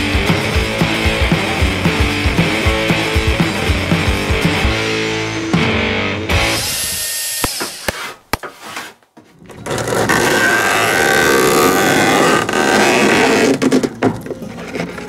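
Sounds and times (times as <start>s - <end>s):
knife scraping through mesh: 7.8s - 9.0s.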